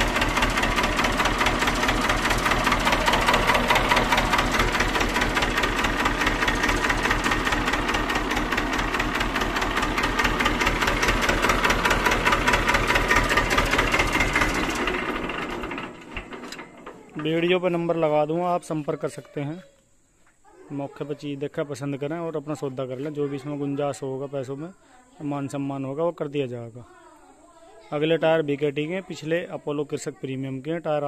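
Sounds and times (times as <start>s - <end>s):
tractor diesel engine knocking: 0.0s - 18.1s.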